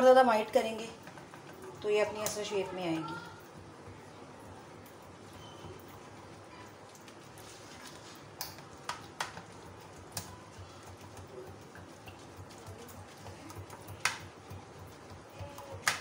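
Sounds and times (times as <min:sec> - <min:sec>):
whisk knocking on metal pan: 0:08.6 - 0:16.0.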